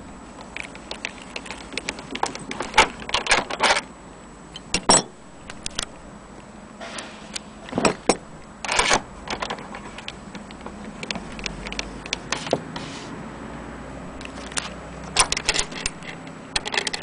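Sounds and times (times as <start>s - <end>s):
metal crank knocking against case: 15.2s - 17.0s.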